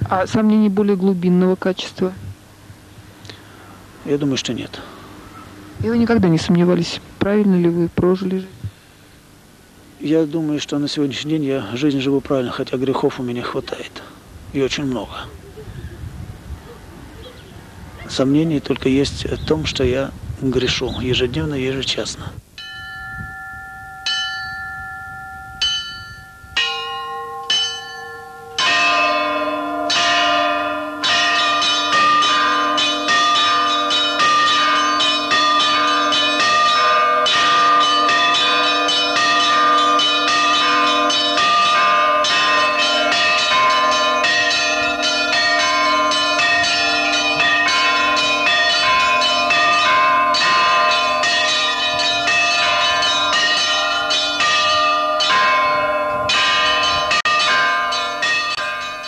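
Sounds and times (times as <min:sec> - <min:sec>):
large deep bell ringing: 0:22.6 - 0:59.0
small bells pealing: 0:22.6 - 0:59.0.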